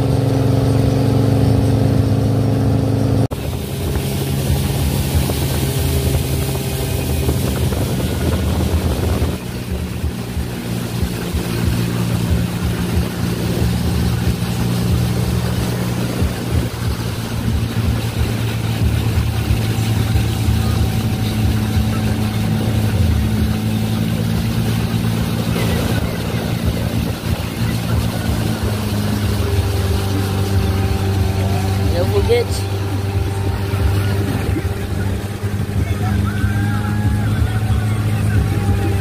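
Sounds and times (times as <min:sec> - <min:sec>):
boat engine humming: 0:00.0 - 0:39.0
water rushing: 0:00.0 - 0:39.0
wind: 0:00.0 - 0:39.0.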